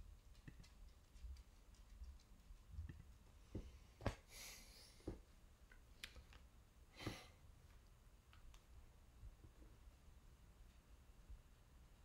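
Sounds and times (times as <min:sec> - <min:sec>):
faint clicks and knocks: 0:00.0 - 0:04.3.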